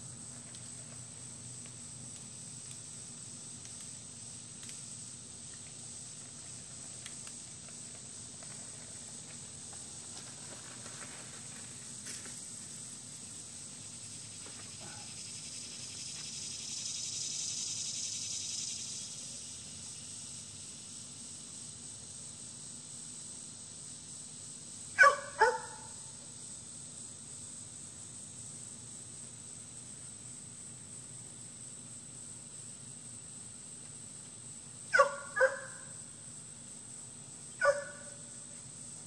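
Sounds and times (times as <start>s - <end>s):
high hiss: 11.0s - 25.0s
dog barking: 25.0s - 25.9s, 34.9s - 35.9s, 37.6s - 38.2s.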